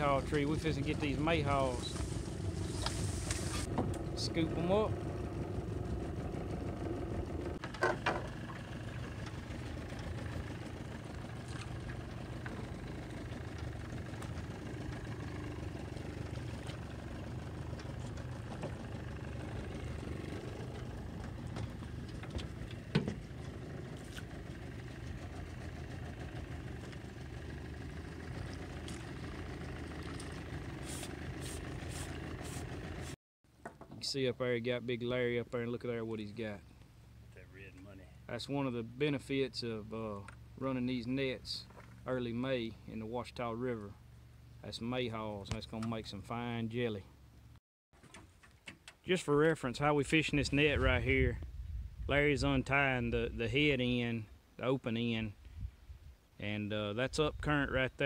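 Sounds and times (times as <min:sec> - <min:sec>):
outboard motor idling: 0:00.0 - 0:33.2, 0:36.6 - 0:43.1.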